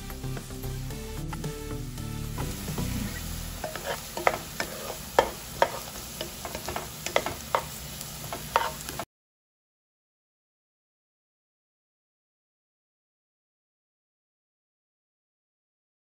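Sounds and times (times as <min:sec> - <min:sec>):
light sizzle: 0:00.1 - 0:09.1
utensil scraping a frying pan: 0:02.4 - 0:09.0.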